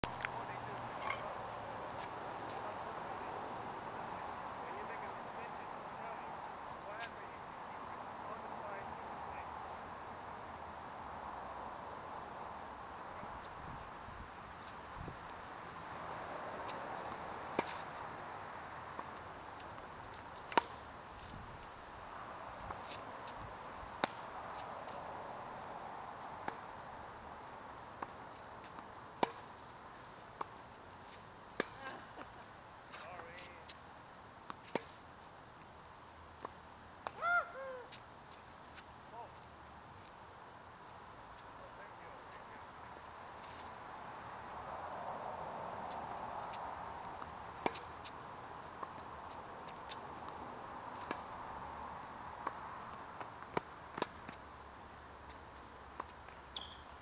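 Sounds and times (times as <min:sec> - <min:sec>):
racket striking tennis ball: 0:20.5 - 0:20.8, 0:47.6 - 0:47.9
tennis ball bouncing: 0:20.5 - 0:20.8, 0:23.9 - 0:24.2, 0:28.0 - 0:29.5, 0:31.6 - 0:33.4, 0:47.2 - 0:48.2, 0:48.8 - 0:51.6, 0:52.4 - 0:54.4, 0:55.6 - 0:57.0
tennis ball struck by rackets: 0:20.5 - 0:20.8, 0:24.0 - 0:24.2, 0:31.6 - 0:31.8, 0:47.2 - 0:47.9.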